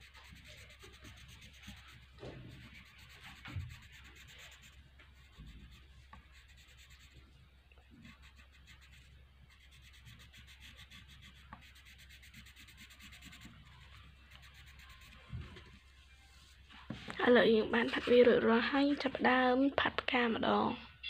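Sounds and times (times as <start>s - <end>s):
pencil rubbing on paper: 0.0s - 7.2s, 8.0s - 15.3s.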